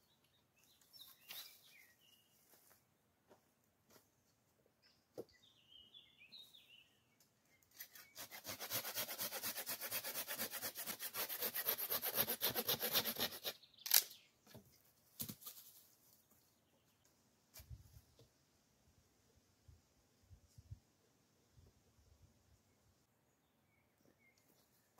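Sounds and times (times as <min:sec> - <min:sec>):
saw cutting wood: 0:07.8 - 0:13.6.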